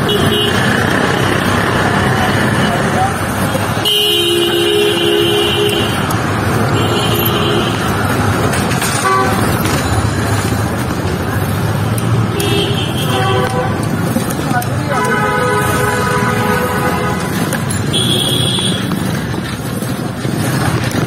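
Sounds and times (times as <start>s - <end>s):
vehicle horns honking: 0.0s - 1.2s, 3.7s - 9.6s, 12.3s - 14.1s, 14.8s - 19.1s
traffic engines rumbling: 0.0s - 21.0s.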